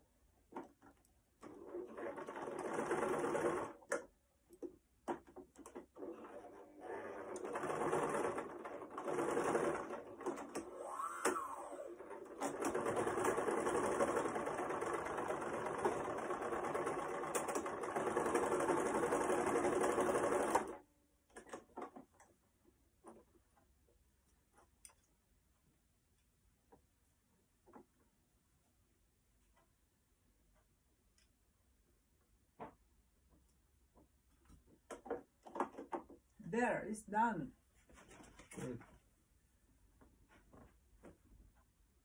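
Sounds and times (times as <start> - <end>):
sewing machine stitching: 1.4 - 4.1, 5.2 - 22.2.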